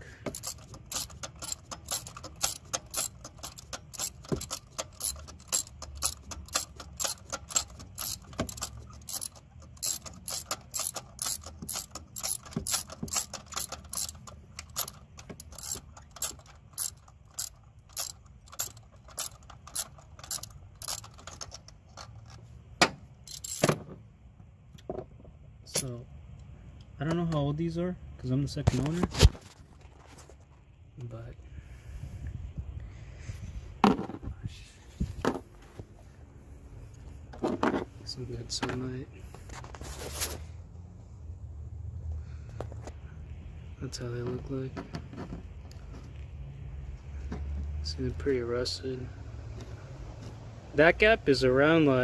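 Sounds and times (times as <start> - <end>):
hand ratchet clicking: 0.2 - 22.3, 23.3 - 23.6.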